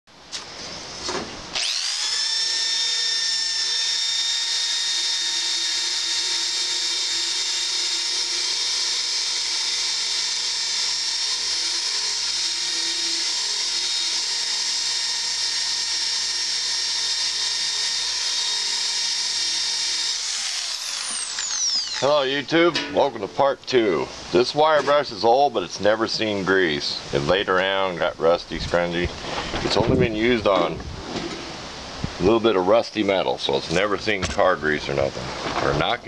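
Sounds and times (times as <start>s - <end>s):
electric drill motor whine: 1.5s - 22.3s.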